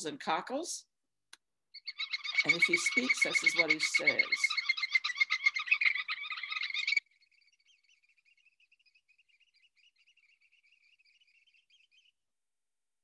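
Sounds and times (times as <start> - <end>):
bird piping high notes: 1.8 - 12.1
faint bird trill: 1.8 - 12.2.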